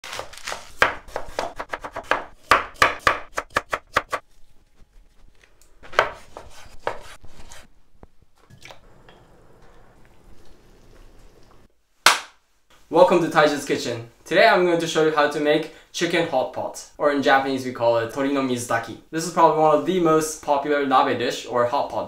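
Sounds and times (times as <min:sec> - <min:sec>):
knife chopping on wooden board: 0:00.1 - 0:04.2, 0:05.9 - 0:07.6
pot simmering hiss: 0:08.4 - 0:11.8.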